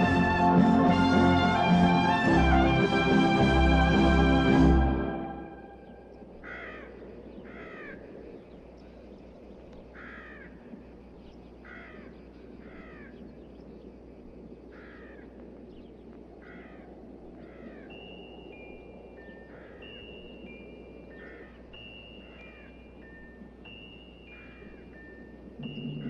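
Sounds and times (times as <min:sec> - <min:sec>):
low background hiss: 0:00.0 - 0:26.0
crows cawing: 0:06.4 - 0:08.1, 0:09.9 - 0:10.7, 0:11.6 - 0:13.2, 0:14.7 - 0:15.4, 0:16.4 - 0:17.9, 0:19.4 - 0:20.0, 0:21.1 - 0:22.8, 0:24.3 - 0:24.9.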